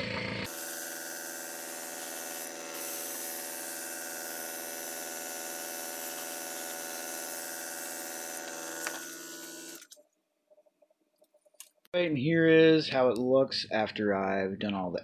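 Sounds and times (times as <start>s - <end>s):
compressor motor hum: 0.0s - 9.9s.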